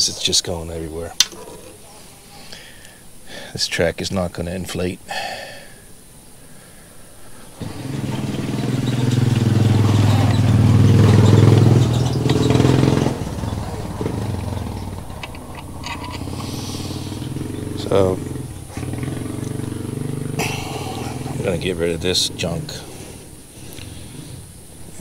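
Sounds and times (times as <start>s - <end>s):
vehicle engine passing: 7.6s - 25.0s.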